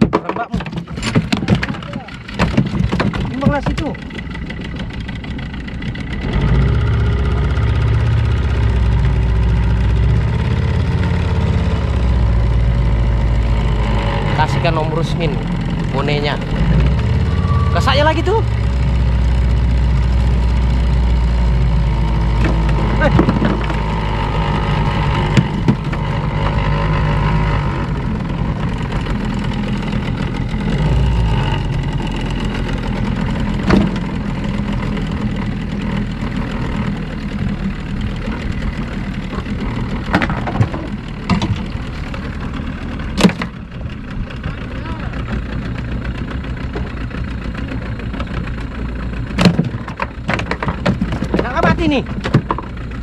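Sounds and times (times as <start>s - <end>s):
boat engine running: 0.0s - 53.0s
voices talking: 14.2s - 19.5s, 51.3s - 52.2s.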